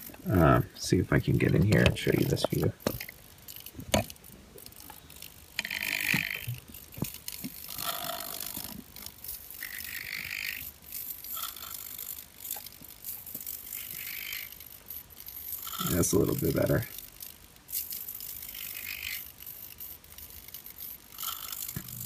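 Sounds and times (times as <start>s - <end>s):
handling clicks and rattles: 0.0s - 9.6s, 12.0s - 22.0s.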